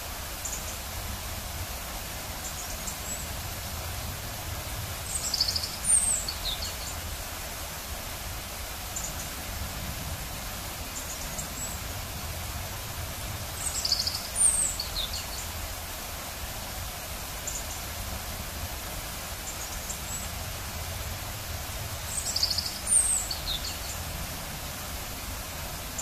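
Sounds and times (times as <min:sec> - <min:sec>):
waterfall rushing: 0:00.0 - 0:26.0
songbird singing: 0:00.3 - 0:00.9, 0:04.9 - 0:07.2, 0:10.8 - 0:12.0, 0:13.5 - 0:15.7, 0:17.4 - 0:17.9, 0:19.3 - 0:20.4, 0:21.9 - 0:24.6
faint bird chirps: 0:05.1 - 0:07.0, 0:13.6 - 0:15.5, 0:22.1 - 0:24.0.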